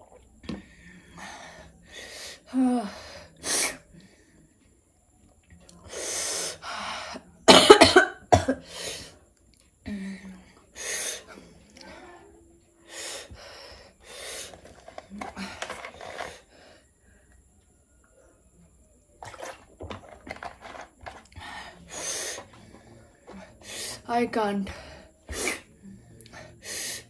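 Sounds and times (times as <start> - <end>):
woman coughing: 7.5 - 8.7.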